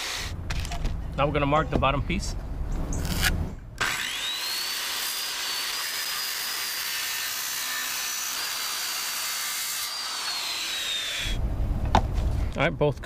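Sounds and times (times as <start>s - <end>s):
circular saw cutting plastic: 3.0s - 11.4s.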